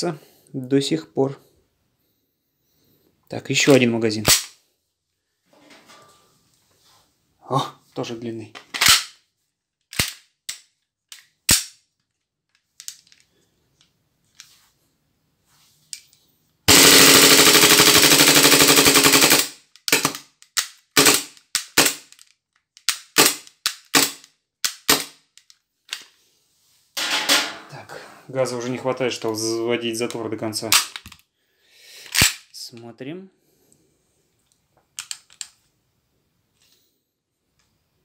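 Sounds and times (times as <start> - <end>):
airsoft pistol shots: 16.7 - 18.3
full-auto burst: 16.7 - 20.2, 21.0 - 22.0.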